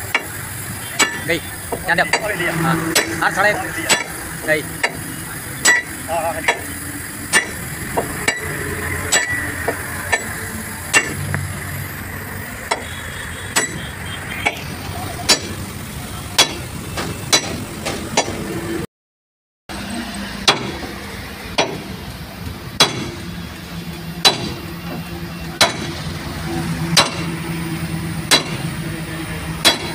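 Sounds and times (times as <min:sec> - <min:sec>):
sledgehammer striking steel bar: 0:00.1 - 0:01.3, 0:02.0 - 0:04.2, 0:05.6 - 0:06.7, 0:07.3 - 0:11.3, 0:13.5 - 0:14.6, 0:15.3 - 0:15.6, 0:16.3 - 0:18.5, 0:20.4 - 0:22.0, 0:22.8 - 0:23.3, 0:24.2 - 0:24.7, 0:25.6 - 0:26.1, 0:26.9 - 0:27.4, 0:28.2 - 0:28.8, 0:29.6 - 0:29.9.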